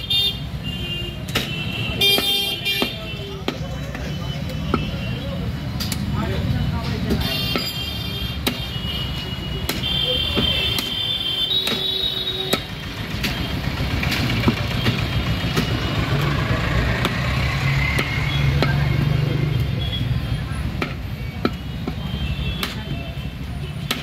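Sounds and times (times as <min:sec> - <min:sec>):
street traffic rumble: 0:00.0 - 0:24.0
cleaver chopping on wooden block: 0:01.3 - 0:03.6, 0:08.4 - 0:08.7, 0:09.6 - 0:11.0, 0:11.6 - 0:16.2, 0:16.8 - 0:19.3, 0:20.8 - 0:23.0.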